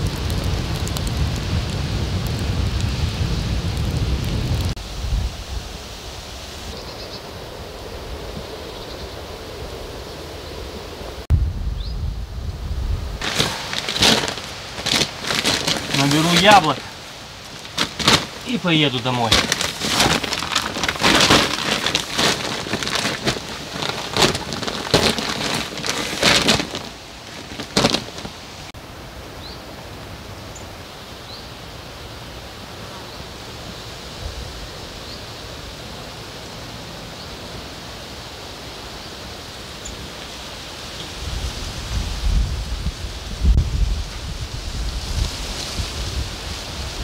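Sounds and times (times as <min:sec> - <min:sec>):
light rain falling: 0:00.0 - 0:47.0
rustling: 0:13.2 - 0:28.8.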